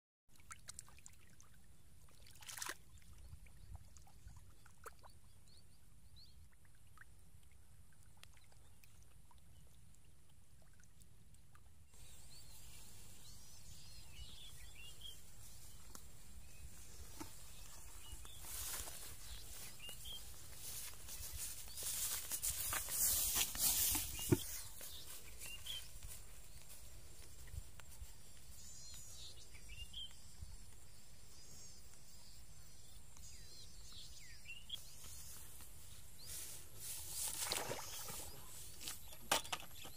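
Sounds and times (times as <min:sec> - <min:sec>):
small fish splashing in puddle: 0:02.1 - 0:03.1
footsteps rustling through tall grass: 0:12.0 - 0:30.2, 0:34.8 - 0:39.1.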